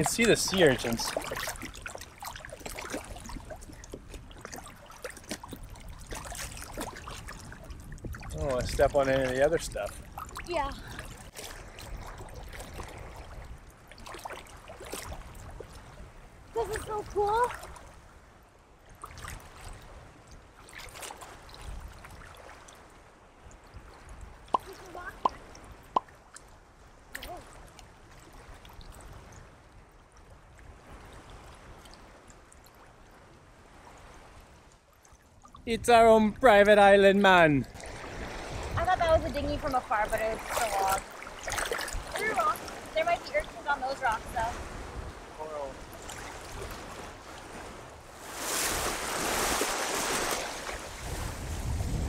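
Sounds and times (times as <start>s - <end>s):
seawater sloshing around legs: 0.0s - 15.9s, 37.4s - 44.6s, 45.2s - 51.6s
small water splash: 0.0s - 18.2s, 18.9s - 35.7s, 36.4s - 52.0s.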